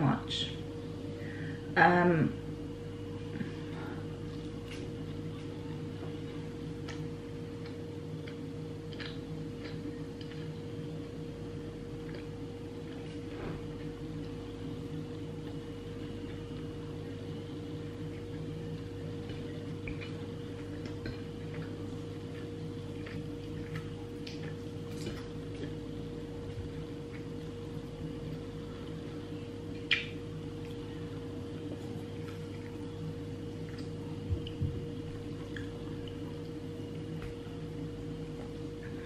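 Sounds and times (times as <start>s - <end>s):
electrical hum: 0.0s - 39.0s
chewing smacks and clicks: 6.8s - 10.5s, 12.0s - 13.3s, 19.2s - 25.8s, 29.7s - 30.8s, 33.5s - 34.6s, 35.4s - 36.2s.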